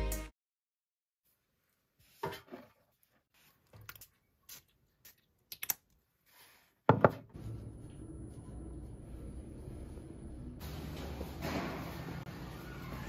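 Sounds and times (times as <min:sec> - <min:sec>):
steady low hum: 0:07.4 - 0:12.0.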